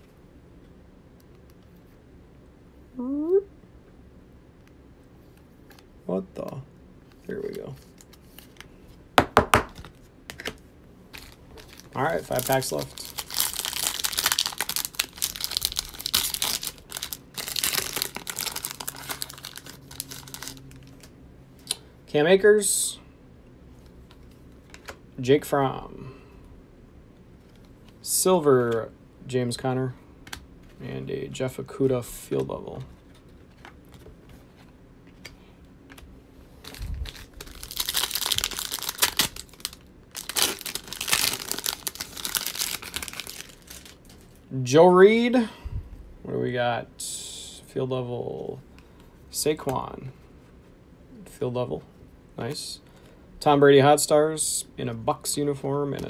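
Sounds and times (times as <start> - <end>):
cards rustling: 7.1 - 9.0, 9.6 - 21.2, 32.3 - 44.4
foil wrapper tearing and crinkling: 11.2 - 21.1, 36.6 - 44.1.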